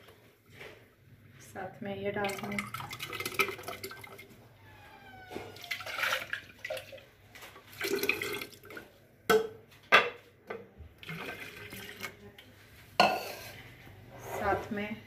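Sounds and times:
liquid pouring into jug: 2.2 - 4.4, 5.6 - 8.9, 11.0 - 12.2.

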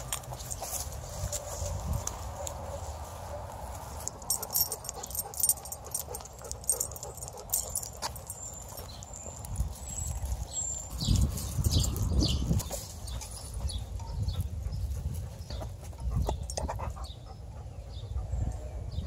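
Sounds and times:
leash clips and dog tags clinking: 0.0 - 2.7, 3.6 - 17.2.

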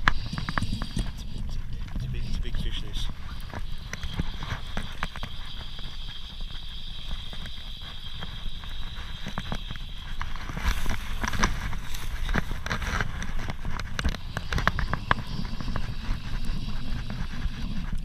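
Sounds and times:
fly reel clicking: 0.0 - 1.6, 2.4 - 18.0
clothing and handling rumble: 10.3 - 17.9.

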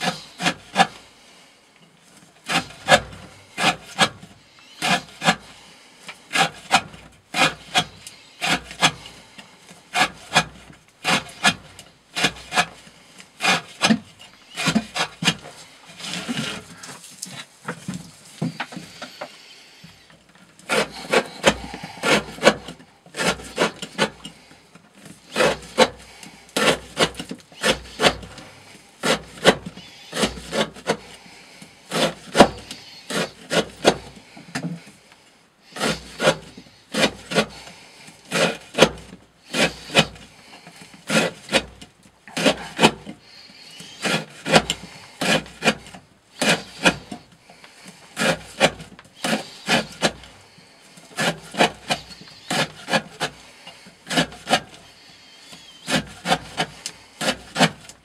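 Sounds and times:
knife slicing through rope: 43.9 - 47.2.

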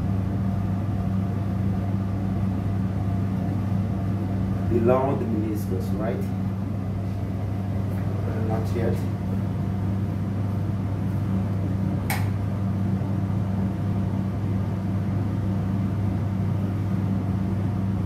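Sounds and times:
extraction fan humming: 0.0 - 18.0
sharp click: 12.1 - 12.4.

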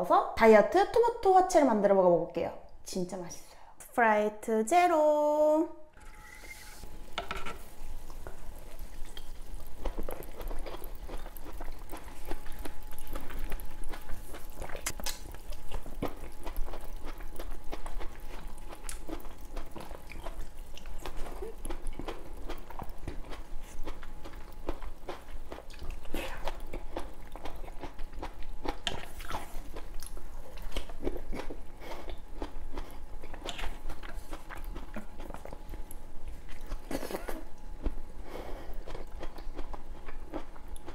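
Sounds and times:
juicy biting and chewing: 9.0 - 38.0, 38.6 - 40.9.

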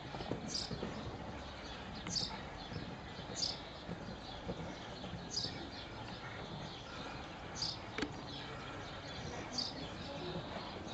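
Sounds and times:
horse hoofbeats on sand: 0.0 - 10.9
bird chirping: 0.1 - 10.9.

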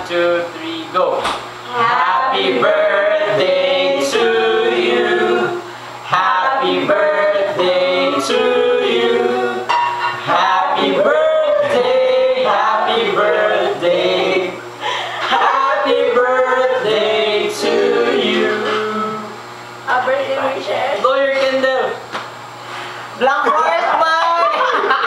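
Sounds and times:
group singing unaccompanied: 1.7 - 19.4.

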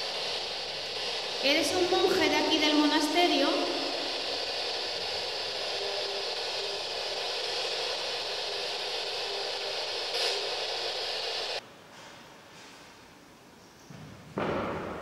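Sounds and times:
static hiss: 0.0 - 11.6.

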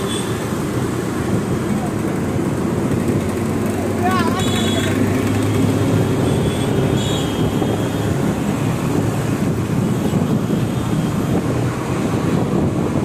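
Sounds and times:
traffic: 0.0 - 13.0
scooter engine: 0.1 - 9.8
wind rumbling on microphone: 6.8 - 13.0.

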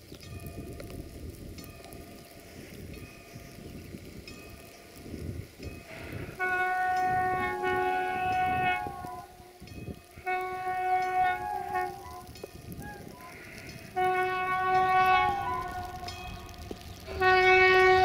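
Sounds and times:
diesel locomotive horn blasts: 5.8 - 18.0.

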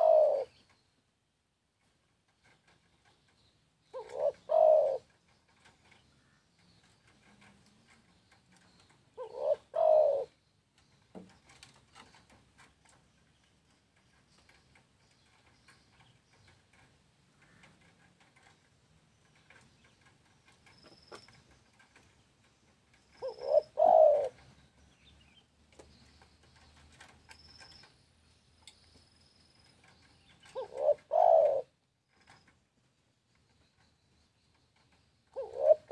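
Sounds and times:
dove cooing: 0.0 - 0.7, 3.9 - 6.0, 7.0 - 10.4, 23.0 - 24.6, 29.9 - 32.3, 34.8 - 35.9.

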